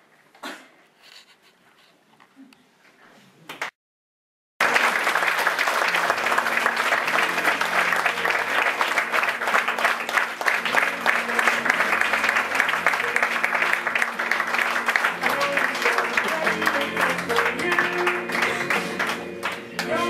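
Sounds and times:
audience applauding: 4.6s - 20.0s.

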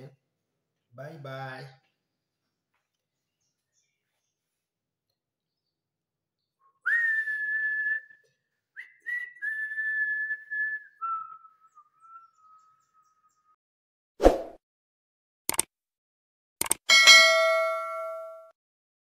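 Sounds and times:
person whistling held notes: 6.7s - 12.6s
sharp click: 15.5s - 15.7s, 16.6s - 16.9s.

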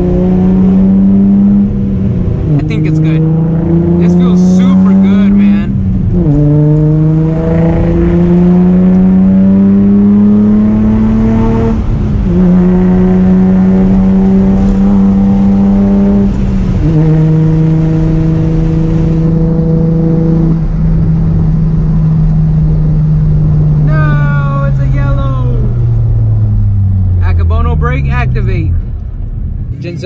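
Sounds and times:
car engine accelerating through gears: 0.0s - 30.0s.

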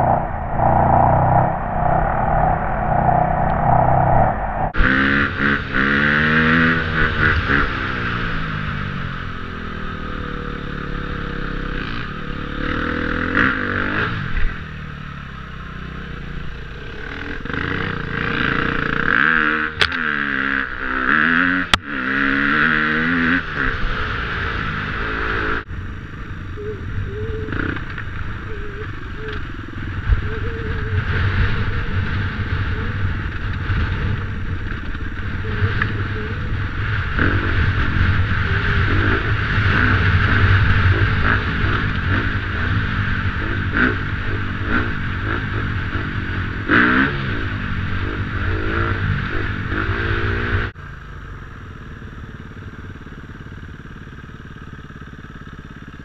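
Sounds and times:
wind rush: 0.0s - 5.6s
dirt bike engine revving: 0.0s - 14.6s, 16.7s - 25.7s, 26.6s - 50.8s.

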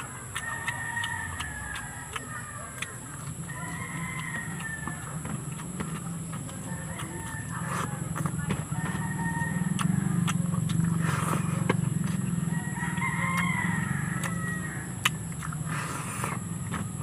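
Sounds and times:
rooster crowing: 0.0s - 5.6s, 6.5s - 10.5s, 12.0s - 15.4s
chewing close to microphone: 0.0s - 17.0s
eating by hand clicks: 0.0s - 17.0s.

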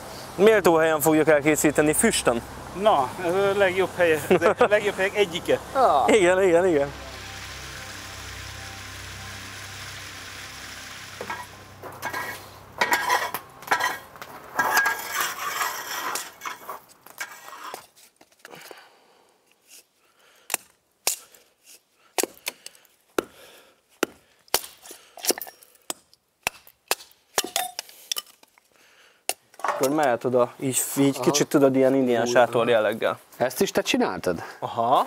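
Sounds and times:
steady hiss: 0.0s - 20.5s
hatchet splitting kindling: 20.5s - 23.4s.

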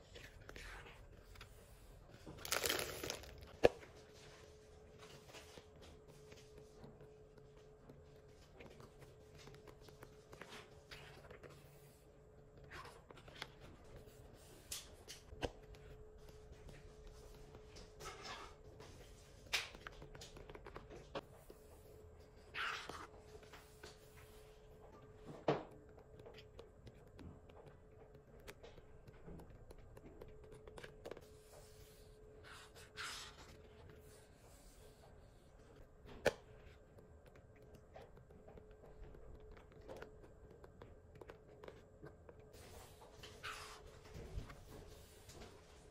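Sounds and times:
paper pages rustling: 0.0s - 4.4s
paper pages rustling and turning: 0.0s - 12.0s.

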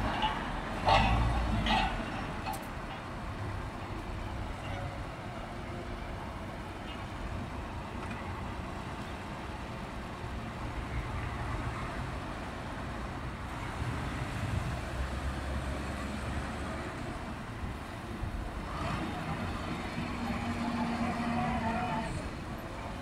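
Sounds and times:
vehicles driving past: 0.0s - 23.0s.

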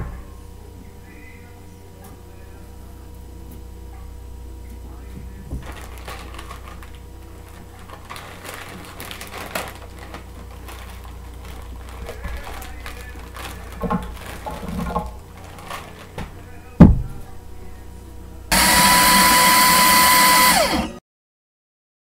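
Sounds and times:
low steady hum: 0.0s - 20.8s
plastic bag crinkling: 5.6s - 17.4s.

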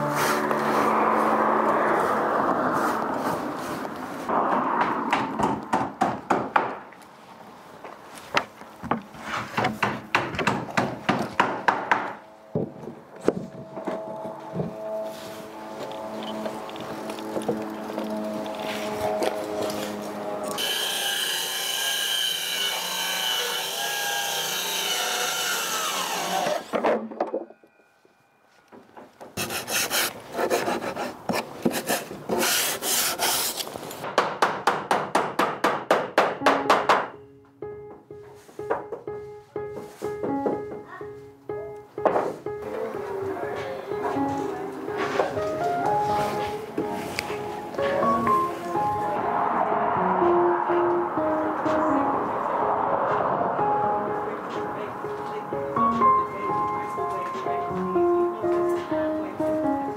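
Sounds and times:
background music: 0.0s - 2.8s, 11.4s - 20.6s, 36.3s - 59.9s
wooden knocks and clatter: 8.3s - 14.8s, 26.7s - 27.6s
rasping strokes on wood: 29.4s - 33.7s.

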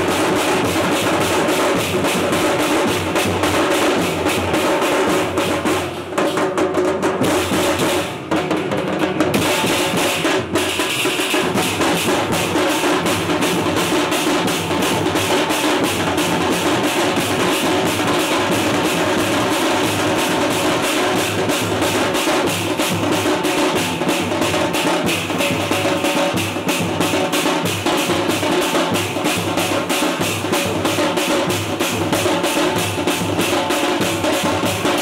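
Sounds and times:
large drums beating fast: 0.0s - 35.0s.

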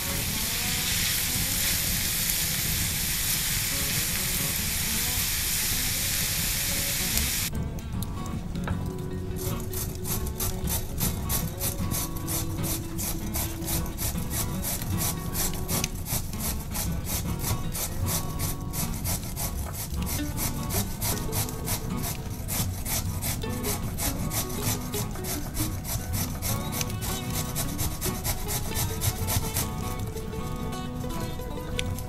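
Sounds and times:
carrot rasping on grater: 0.0s - 2.8s, 9.4s - 32.0s.

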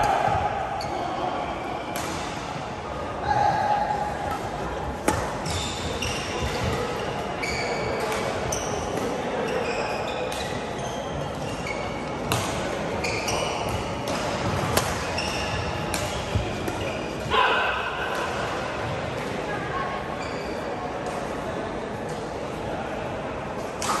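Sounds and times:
voices in a hall: 0.0s - 24.0s
shoes squeaking on court: 5.4s - 12.4s, 13.0s - 14.0s, 15.1s - 17.2s, 20.2s - 20.7s
rackets hitting shuttlecock: 12.2s - 17.3s.

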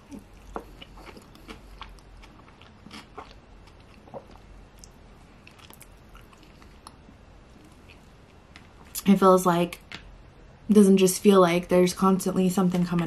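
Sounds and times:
person chewing: 0.0s - 9.0s.

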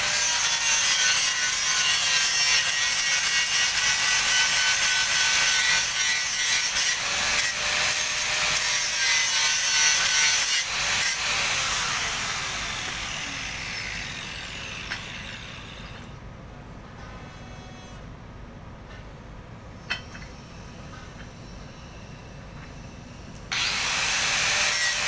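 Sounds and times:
angle grinder grinding steel: 0.0s - 16.1s, 23.5s - 25.0s.

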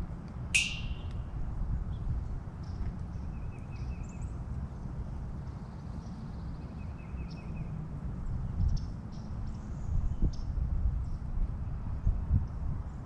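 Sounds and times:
wind rumble on microphone: 0.0s - 13.0s
songbirds twittering: 0.6s - 7.8s.

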